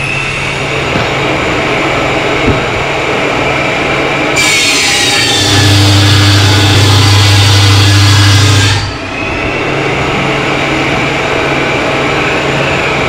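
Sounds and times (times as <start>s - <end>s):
table saw cutting plywood: 4.4s - 9.0s
table saw running unloaded: 4.4s - 9.0s.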